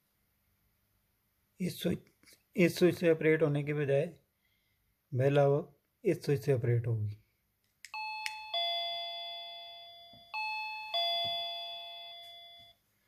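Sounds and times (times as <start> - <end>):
doorbell ding-dong chime: 7.9 - 12.8.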